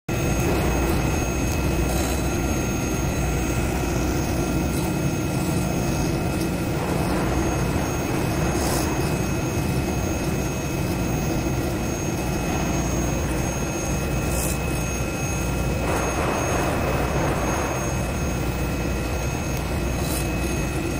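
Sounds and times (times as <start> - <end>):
foam cutting machine drone: 0.1 - 20.9
thin high whines: 0.1 - 20.9.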